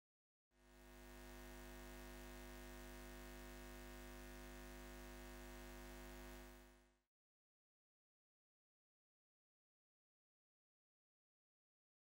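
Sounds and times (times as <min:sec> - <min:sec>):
faint electrical hum with hiss: 0:00.6 - 0:06.8.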